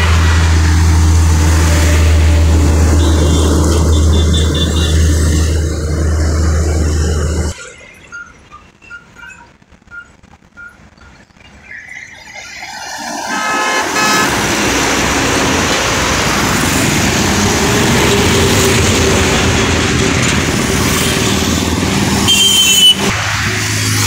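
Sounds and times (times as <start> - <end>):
highway traffic passing: 0.0 - 24.0
horn tooting: 1.5 - 5.6, 13.2 - 15.0, 20.9 - 23.2
higher horn: 13.2 - 15.6.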